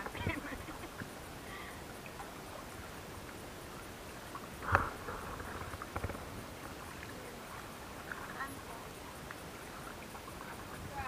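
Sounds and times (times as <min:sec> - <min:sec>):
faint water hiss: 0:00.0 - 0:11.0.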